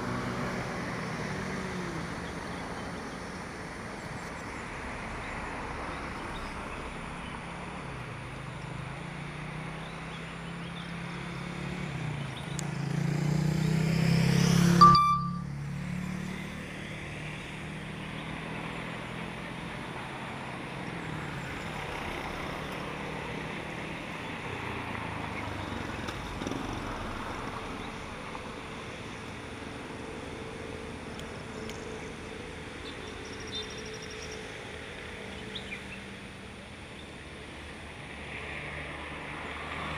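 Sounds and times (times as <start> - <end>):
motor vehicle humming: 0.0 - 39.9
traffic hum: 0.0 - 39.9
short beep: 14.8 - 15.5.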